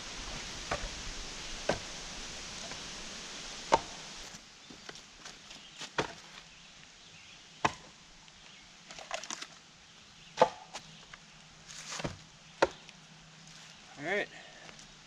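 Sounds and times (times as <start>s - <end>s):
firewood knocking on woodpile: 1.6s - 1.9s, 3.7s - 4.0s, 5.8s - 6.4s.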